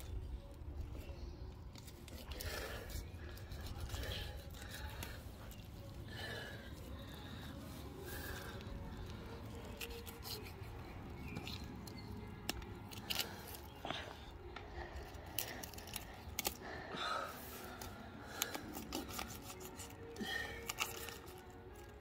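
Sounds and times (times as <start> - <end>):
knife scraping along fish bones: 9.7 - 10.6.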